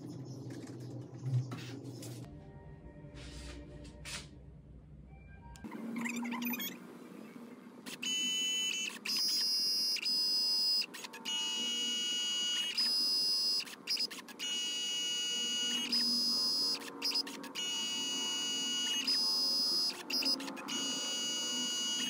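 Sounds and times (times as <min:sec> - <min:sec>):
printer motor whine: 0:07.8 - 0:22.0.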